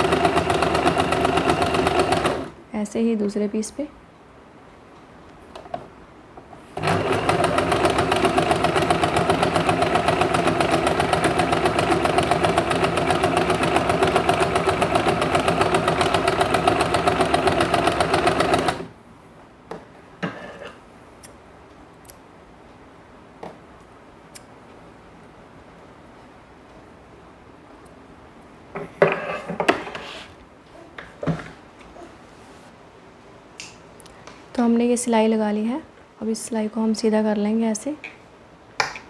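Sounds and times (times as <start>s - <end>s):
electric sewing machine stitching: 0.0s - 2.5s, 6.8s - 18.9s.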